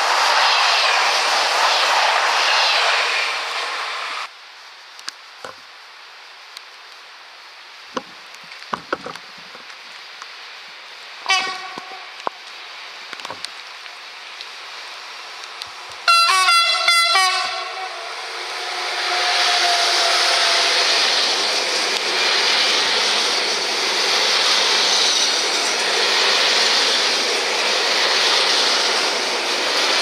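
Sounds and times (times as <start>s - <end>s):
loud steady rushing noise: 0.0s - 4.3s, 16.8s - 30.0s
locomotive horn blast: 11.3s - 12.2s, 16.1s - 18.2s.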